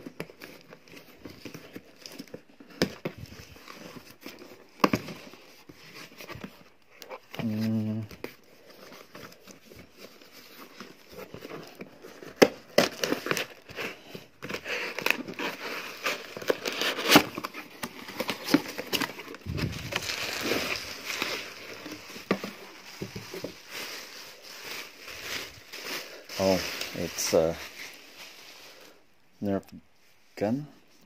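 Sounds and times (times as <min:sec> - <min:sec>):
bubble wrap crinkling: 0:00.0 - 0:30.2
cardboard box flaps rustling: 0:14.5 - 0:27.9.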